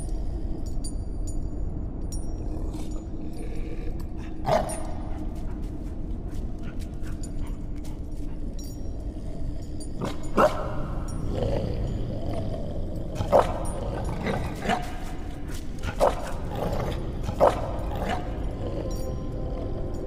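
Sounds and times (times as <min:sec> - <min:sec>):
faint light clinks: 0:00.0 - 0:20.0
steady low hum: 0:00.0 - 0:20.0
dog barking: 0:04.4 - 0:04.9, 0:10.3 - 0:11.0, 0:15.8 - 0:18.4.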